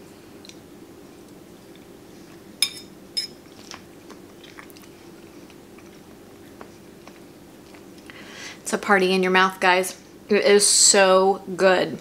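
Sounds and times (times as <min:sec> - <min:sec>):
fork clinking on ceramic plate: 0:02.6 - 0:03.4
faint chewing: 0:03.5 - 0:08.2.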